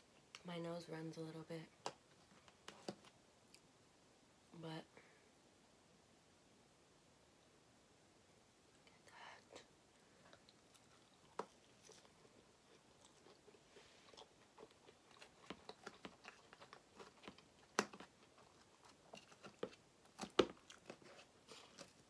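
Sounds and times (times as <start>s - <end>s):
close-up chewing: 10.0s - 22.0s.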